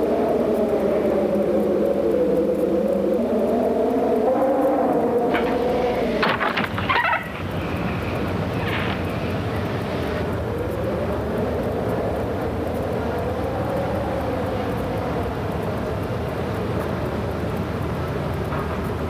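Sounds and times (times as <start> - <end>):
road noise: 0.0 - 19.0
car engine: 4.4 - 19.0.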